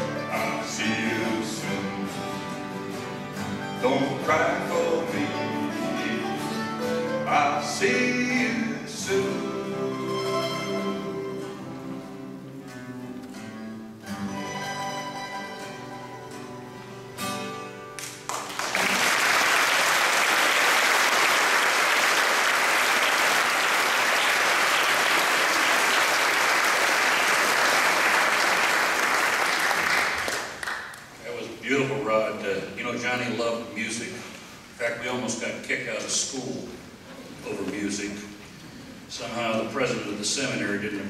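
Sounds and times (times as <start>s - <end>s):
acoustic string band playing: 0.0s - 18.3s
audience applause: 18.0s - 31.2s.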